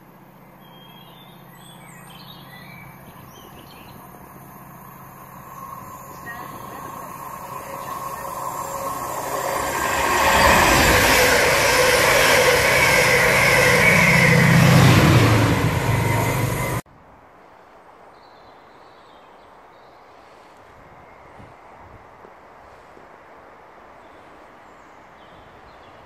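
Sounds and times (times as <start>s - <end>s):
diesel locomotive engine hum: 0.0s - 16.8s
faint outdoor background: 0.0s - 26.0s
train wheels rumbling on rail: 2.9s - 16.8s.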